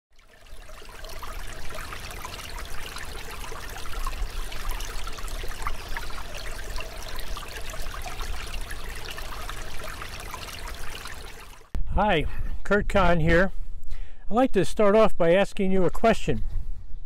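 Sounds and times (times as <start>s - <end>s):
stream babbling over stones: 0.2s - 11.7s.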